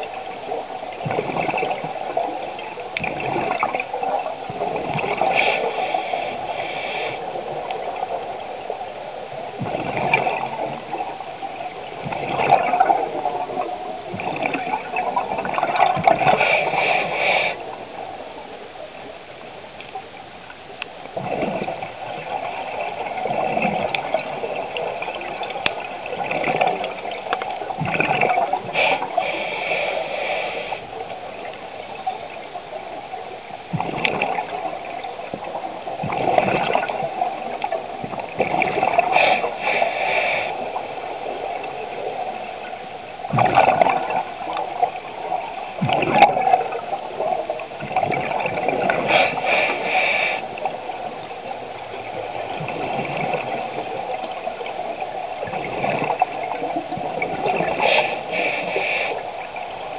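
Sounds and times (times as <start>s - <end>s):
bubbles gurgling: 0.0s - 6.5s, 7.4s - 16.9s, 21.0s - 29.2s, 30.9s - 39.8s, 40.6s - 59.9s
underwater regulator breathing: 5.1s - 7.6s, 16.1s - 17.7s, 28.4s - 31.1s, 38.5s - 41.0s, 48.9s - 50.8s, 57.4s - 59.6s.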